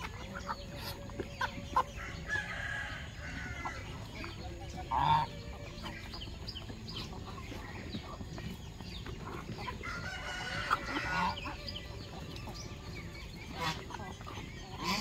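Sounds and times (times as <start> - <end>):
chickens clucking: 0.0 - 15.0
chicks peeping: 0.0 - 15.0
loud long chicken call: 9.8 - 12.3.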